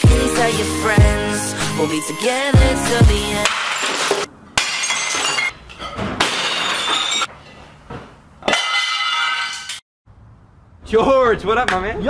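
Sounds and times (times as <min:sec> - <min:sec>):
breaking pieces ringing: 0:03.4 - 0:07.3, 0:08.5 - 0:09.8
dishes smashing: 0:03.4 - 0:07.3, 0:08.4 - 0:09.8.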